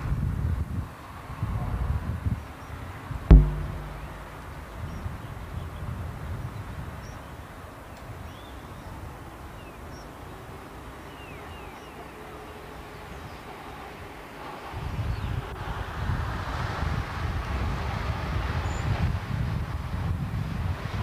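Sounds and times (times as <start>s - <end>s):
metallic clang: 3.3s - 4.9s
low outdoor rumble: 3.3s - 5.5s.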